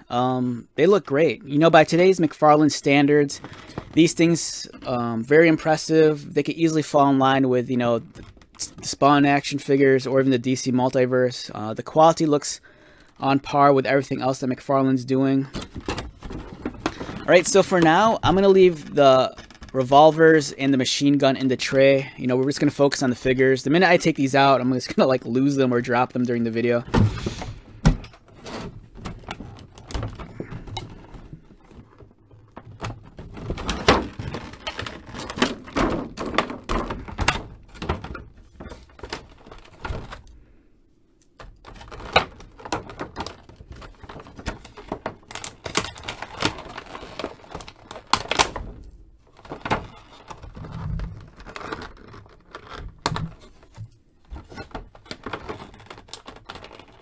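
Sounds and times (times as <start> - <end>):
plastic blister tray crackling: 14.0 - 20.5, 22.6 - 40.4, 41.3 - 57.0.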